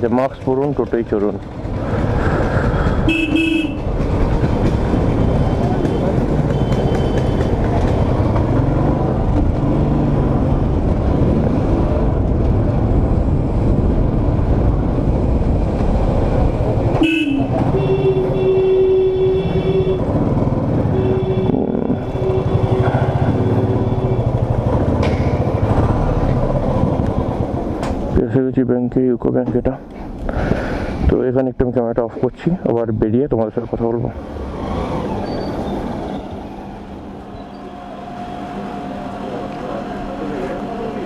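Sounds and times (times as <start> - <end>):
vehicle horn blasts: 3.1 - 3.9, 5.7 - 7.6, 17.0 - 20.1, 20.8 - 24.4.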